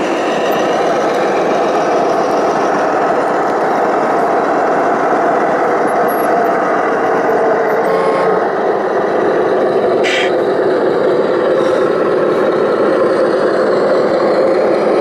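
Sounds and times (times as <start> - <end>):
heavy truck engine: 0.0 - 15.0.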